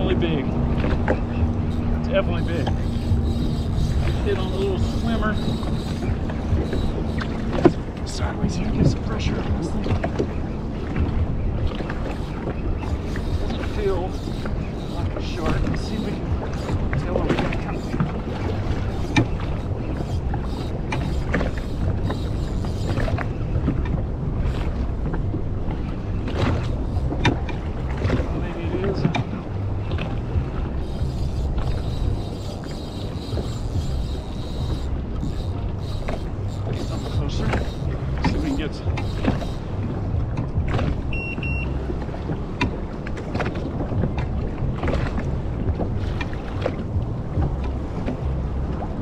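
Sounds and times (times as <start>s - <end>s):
water slapping against hull: 0.0s - 49.0s
wind buffeting microphone: 0.0s - 49.0s
short high beeps: 41.1s - 41.8s.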